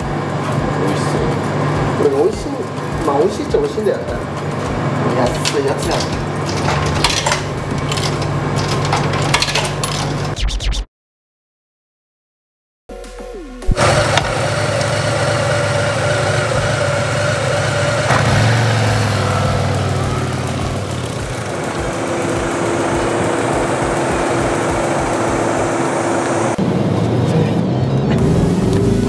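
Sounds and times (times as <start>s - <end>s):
motorcycle engine idling and revving: 5.8s - 10.4s, 13.7s - 29.0s.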